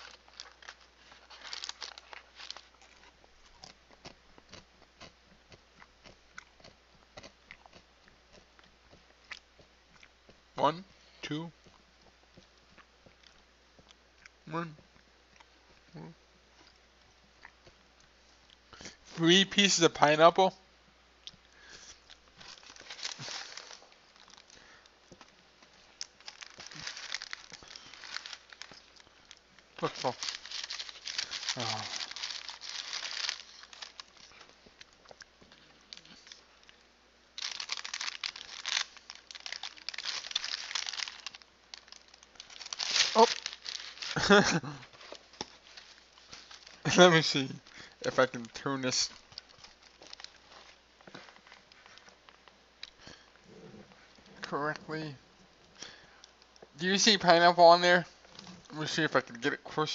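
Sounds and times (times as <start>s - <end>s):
cardboard box crinkling rustles: 0.0s - 3.0s, 22.4s - 24.5s, 26.2s - 29.0s, 29.8s - 34.5s, 37.4s - 47.5s, 49.2s - 52.1s
person chewing: 0.0s - 10.4s, 26.0s - 36.8s.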